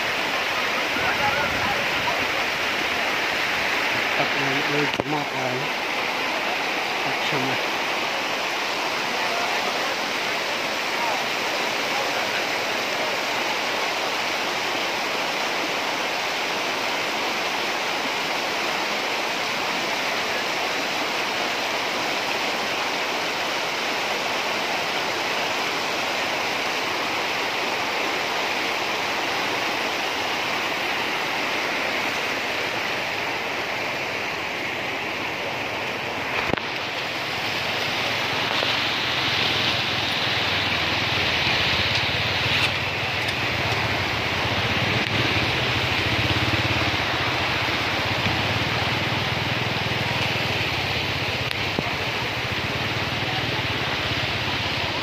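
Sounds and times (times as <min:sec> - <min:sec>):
floodwater rushing across road: 0:00.0 - 0:55.0.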